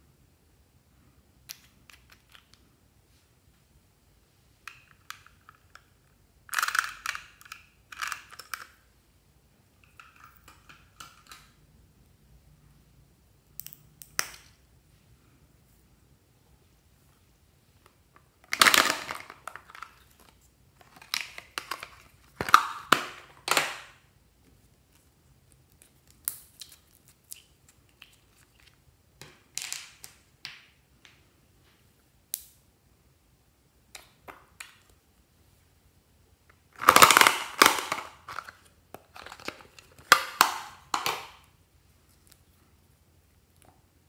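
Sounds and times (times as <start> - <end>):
plastic items clicking and rattling: 4.7 - 8.8, 18.4 - 23.9, 36.7 - 41.4.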